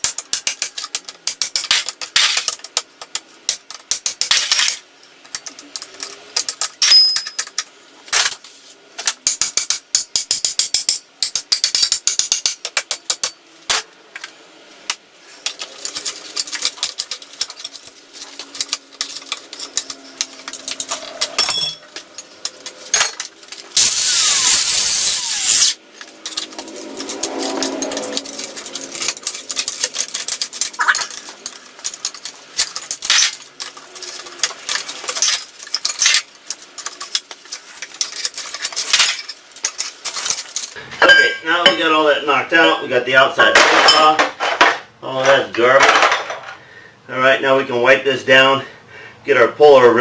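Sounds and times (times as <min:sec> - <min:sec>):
steel tools clinking on bearing: 0:04.1 - 0:07.7, 0:15.4 - 0:41.8.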